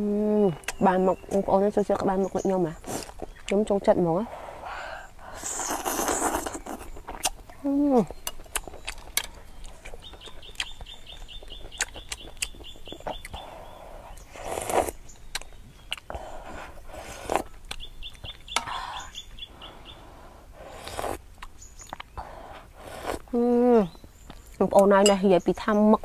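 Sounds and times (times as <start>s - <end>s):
soup slurping: 5.3s - 7.0s, 20.6s - 21.2s, 22.8s - 23.3s
lip smacks and chewing clicks: 5.8s - 13.5s, 14.1s - 16.2s, 17.2s - 18.6s, 20.8s - 22.3s
bird calling: 17.7s - 20.4s.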